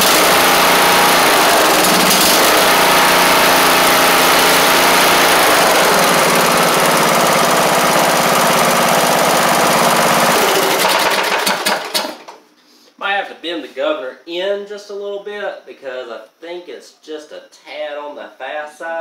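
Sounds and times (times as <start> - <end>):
lawn tractor engine running: 0.0 - 12.4.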